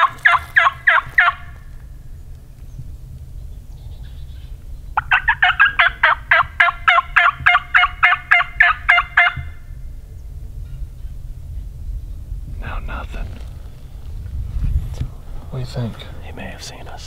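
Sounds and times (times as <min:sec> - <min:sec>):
turkey call yelps: 0:00.0 - 0:01.6, 0:04.0 - 0:09.6.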